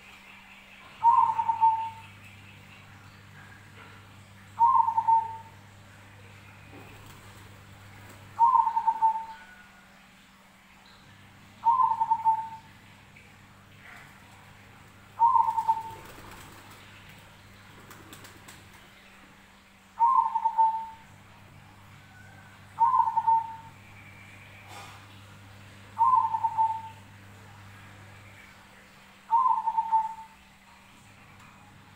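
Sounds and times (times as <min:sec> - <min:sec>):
faint low hum: 0:00.0 - 0:31.9
dove cooing: 0:01.0 - 0:02.1, 0:04.6 - 0:05.6, 0:08.3 - 0:09.8, 0:11.6 - 0:12.7, 0:15.2 - 0:16.8, 0:20.0 - 0:21.1, 0:22.1 - 0:23.8, 0:26.0 - 0:27.1, 0:29.3 - 0:30.4.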